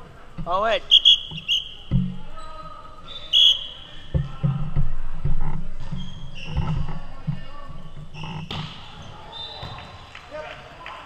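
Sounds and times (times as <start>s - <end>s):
voices and court noise: 0.0s - 11.0s
high-pitched shoe chirp: 0.9s - 1.9s
volleyball smack: 8.5s - 9.0s.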